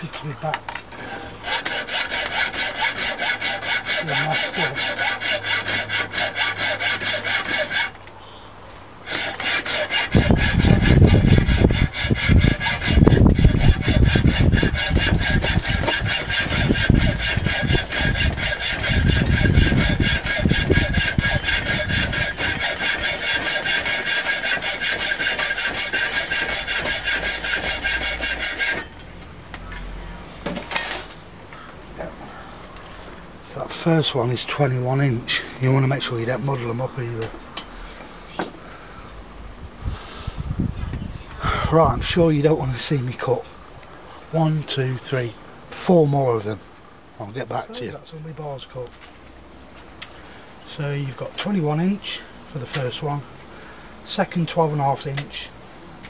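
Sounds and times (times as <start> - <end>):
hacksaw cutting steel bar: 1.1 - 8.0, 9.0 - 29.0.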